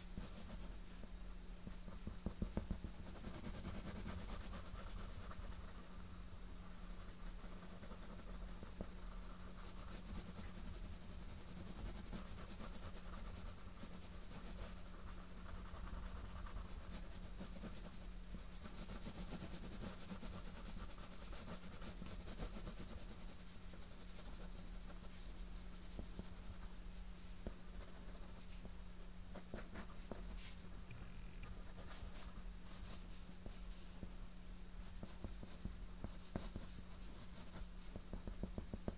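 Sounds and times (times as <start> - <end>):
faint low hum: 0.0 - 38.9
pencil scratching on paper: 1.9 - 6.2, 6.8 - 26.7, 27.4 - 28.6, 31.5 - 33.1, 34.9 - 38.9.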